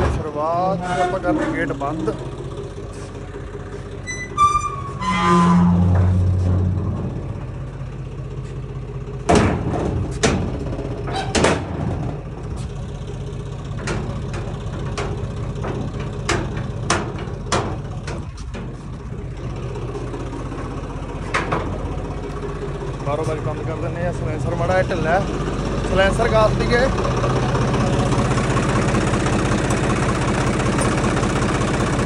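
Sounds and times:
metal gate doors clanking: 0.0 - 2.6, 4.0 - 7.8, 9.3 - 12.4, 13.6 - 18.8, 28.5 - 32.0
tractor engine idling: 0.0 - 32.0.

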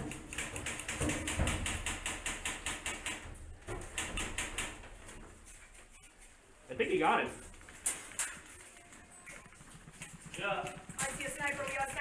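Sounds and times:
rapid airsoft gunfire clicks: 0.0 - 3.2, 3.9 - 4.8.

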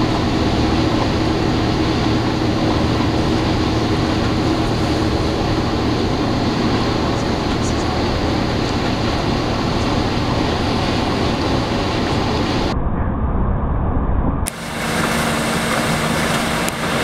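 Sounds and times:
bus engine and road rumble: 0.0 - 17.0
steady low hum: 0.0 - 17.0.

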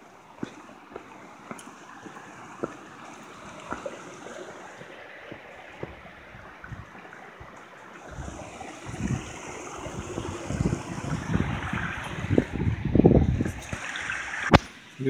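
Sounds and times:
stream trickling over rocks: 0.0 - 15.0
low thumps and rumbles: 5.8 - 13.7.

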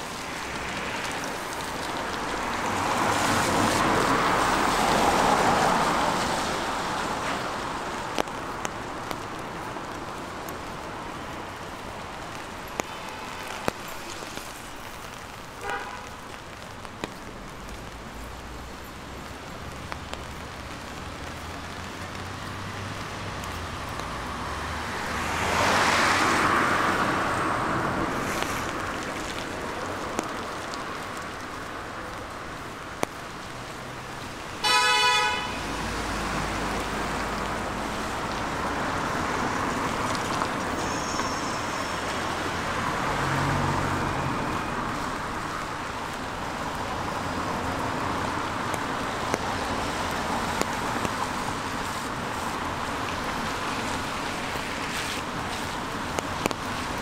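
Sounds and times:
road traffic: 0.0 - 57.0
car horn toot: 15.6 - 16.0, 34.6 - 35.6
vehicle passing: 42.3 - 45.4.

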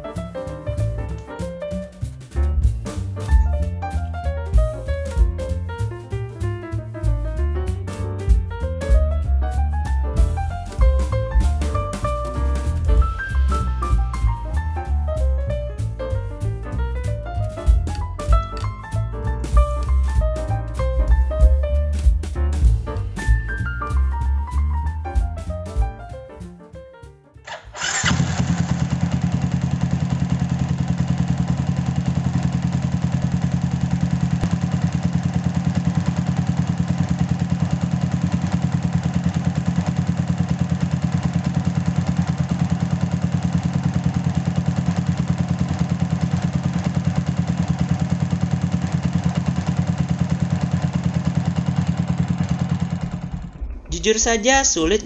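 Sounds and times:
motorcycle engine cranking without firing: 27.5 - 53.7.

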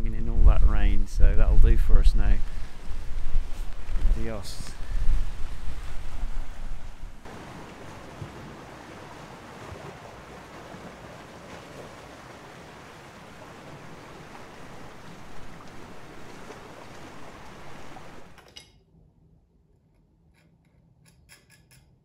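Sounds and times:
wind rumbling on microphone: 0.0 - 18.4
sea surf on rocky shore: 2.2 - 18.4.

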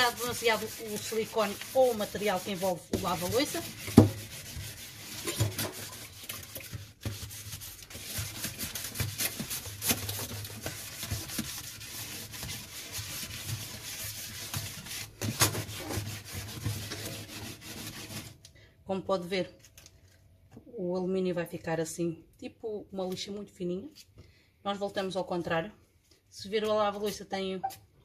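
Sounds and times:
foil ball scrubbing steel sink: 0.0 - 18.4.

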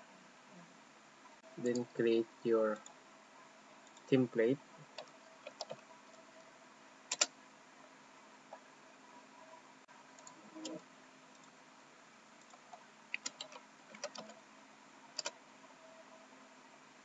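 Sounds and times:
faint steady hiss: 0.0 - 17.0
computer mouse clicks: 4.9 - 5.8, 7.1 - 7.3, 10.2 - 11.6, 12.4 - 14.4, 15.2 - 15.4
keyboard keystrokes: 5.0 - 5.8, 12.4 - 14.4.

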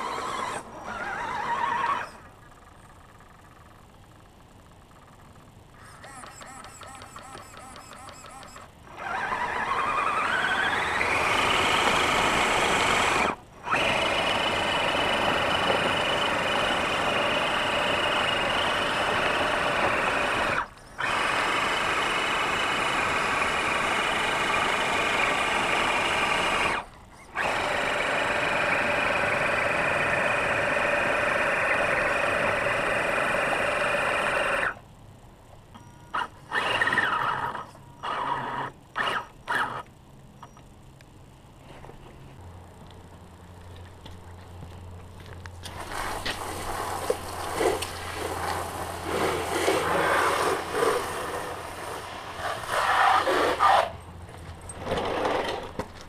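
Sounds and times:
electric motor whining: 0.0 - 2.3, 5.8 - 34.8, 36.1 - 39.9.

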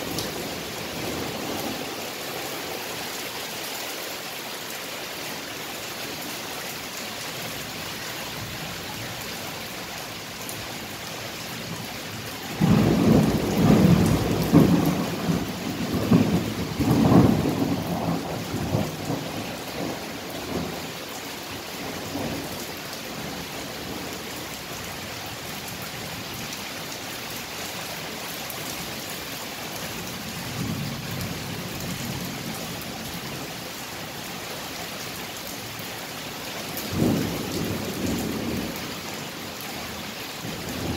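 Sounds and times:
rain hiss: 0.0 - 40.9
thunder rumbling: 12.5 - 20.8, 36.9 - 39.0.

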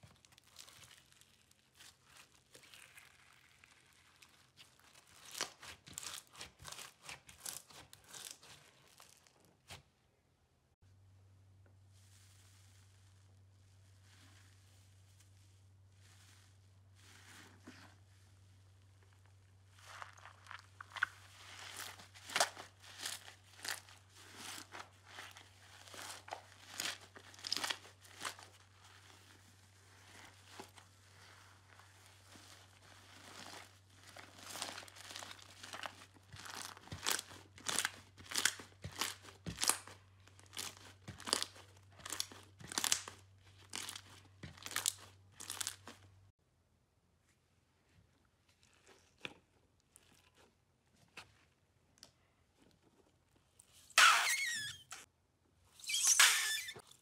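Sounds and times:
slime crackling and popping: 0.0 - 9.8, 19.2 - 46.1
low steady hum: 10.1 - 43.6.

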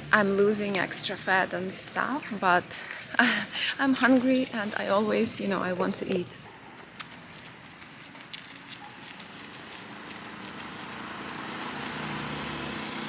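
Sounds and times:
motor vehicle hum: 0.0 - 3.1, 6.8 - 13.0.

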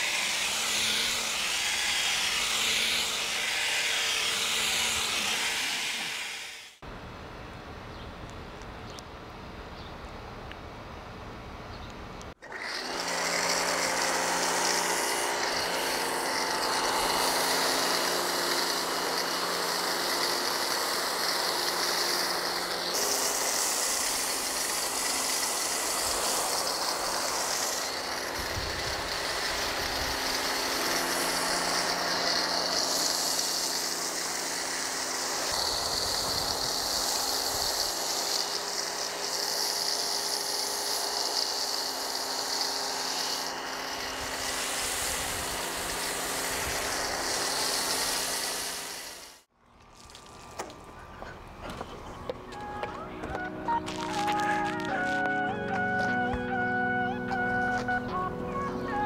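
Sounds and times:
foam spray hissing: 0.0 - 6.8, 12.6 - 49.5
pressure washer humming: 0.0 - 6.8, 12.4 - 59.0.

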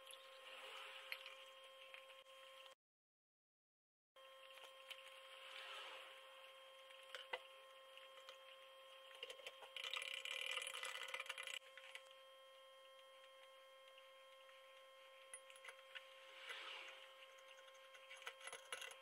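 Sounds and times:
faint steady whine: 0.0 - 2.8, 4.2 - 19.0.

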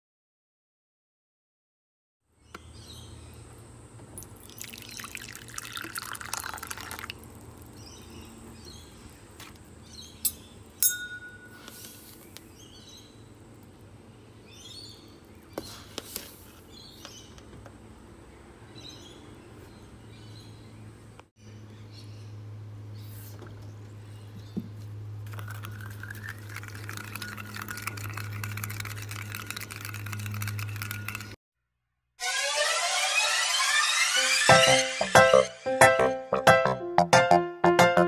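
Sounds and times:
water pouring into a ceramic bowl: 4.2 - 7.7, 25.3 - 31.4.

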